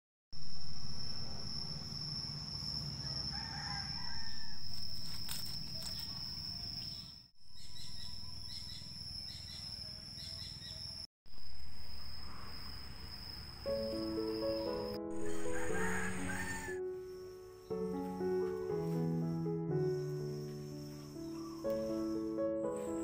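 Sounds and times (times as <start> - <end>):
high-pitched insect drone: 0.4 - 17.9
bird calls: 5.8 - 11.0.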